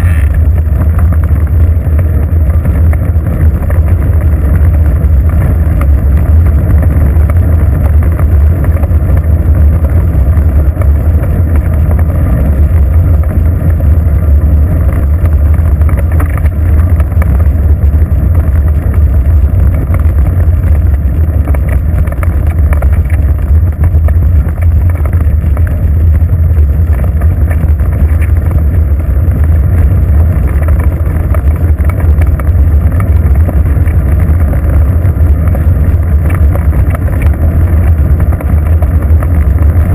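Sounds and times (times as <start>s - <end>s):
tyre rumble on road: 0.0s - 39.9s.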